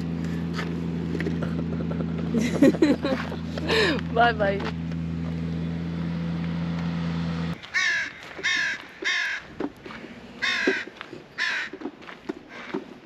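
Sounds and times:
low motor hum: 0:00.0 - 0:13.0
crows cawing: 0:07.6 - 0:09.7, 0:10.4 - 0:11.9, 0:12.5 - 0:12.9.

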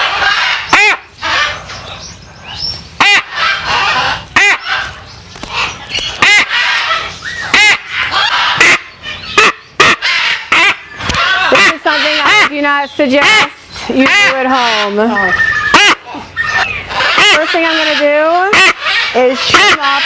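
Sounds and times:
macaw squawking: 0:00.0 - 0:01.8, 0:03.0 - 0:20.0.

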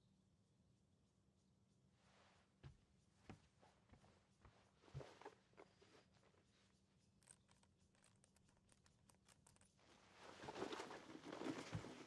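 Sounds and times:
handling clicks and rustles: 0:07.0 - 0:12.0.

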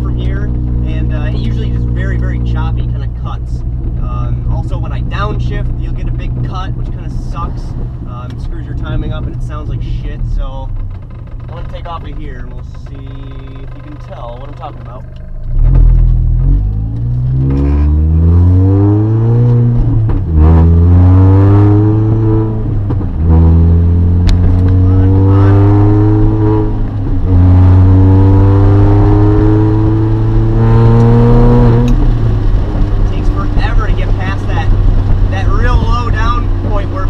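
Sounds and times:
car engine accelerating: 0:00.0 - 0:37.0.

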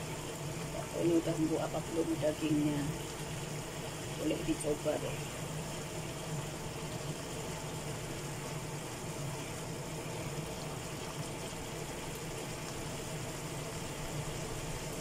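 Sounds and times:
constant low hum: 0:00.0 - 0:15.0
stew bubbling in a pan: 0:00.0 - 0:15.0.

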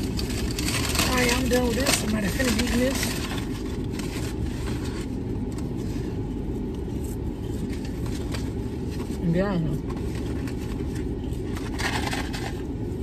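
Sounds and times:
paper rustling: 0:00.0 - 0:12.7.

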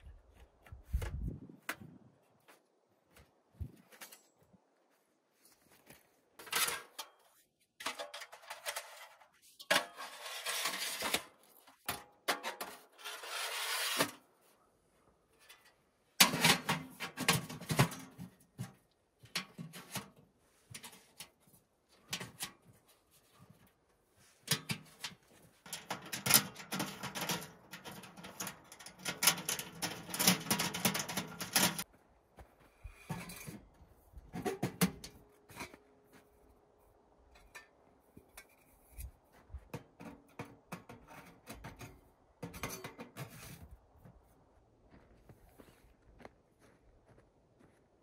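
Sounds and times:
metal stove parts clanking and scraping: 0:06.4 - 0:14.2, 0:15.3 - 0:22.8, 0:24.4 - 0:31.9, 0:32.8 - 0:33.6, 0:34.3 - 0:35.8, 0:37.3 - 0:39.1, 0:39.7 - 0:43.8.

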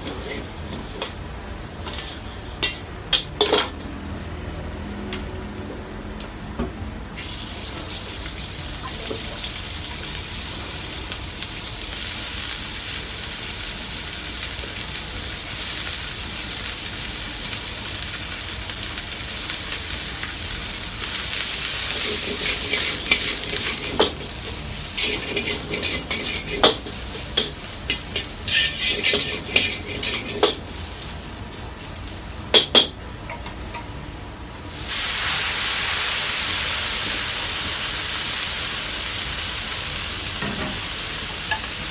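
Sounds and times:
cabbage sizzling in a wok: 0:00.0 - 0:02.8, 0:07.2 - 0:41.9
metal ladle scraping a wok: 0:21.9 - 0:30.6
loud steam hiss: 0:34.8 - 0:41.9.

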